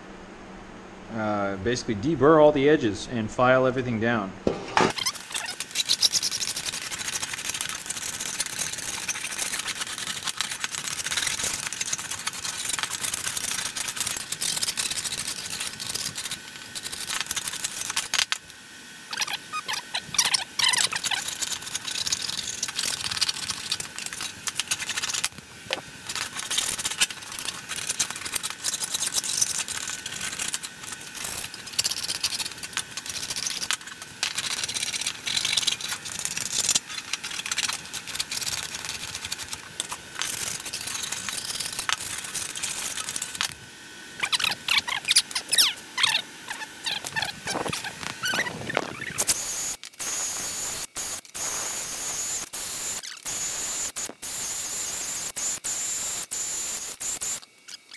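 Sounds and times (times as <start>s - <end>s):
file scraping metal edges: 4.5s - 6.6s.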